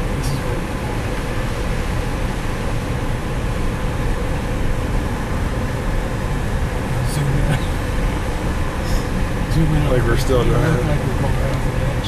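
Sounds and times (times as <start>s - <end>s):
car driving on dirt road: 0.0s - 12.0s.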